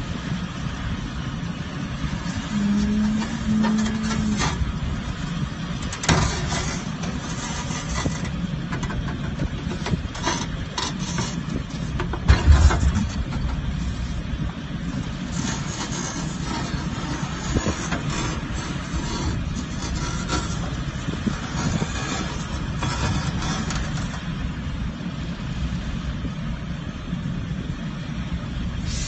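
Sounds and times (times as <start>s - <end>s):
diesel truck engine running: 0.0s - 29.0s.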